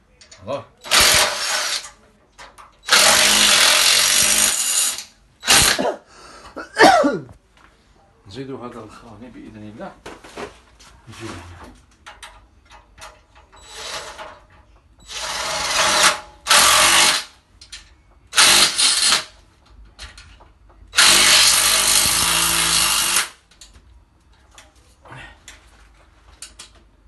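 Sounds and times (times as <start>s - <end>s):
cordless drill running: 0.9s - 1.8s, 2.9s - 5.8s, 15.1s - 17.2s, 18.4s - 19.2s, 21.0s - 23.4s.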